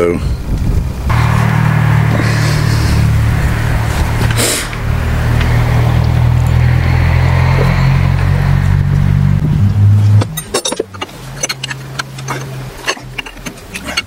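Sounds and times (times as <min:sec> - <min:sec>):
low machine hum: 0:01.1 - 0:13.9.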